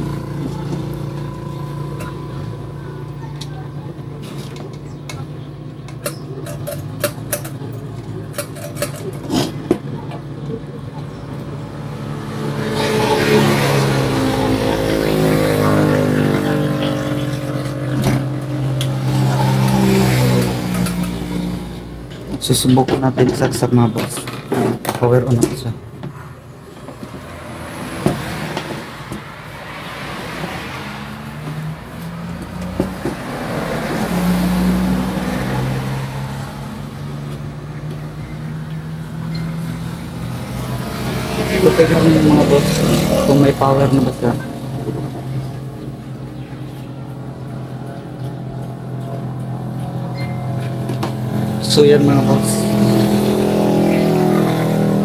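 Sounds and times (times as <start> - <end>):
vehicle engine running: 0.0 - 55.0.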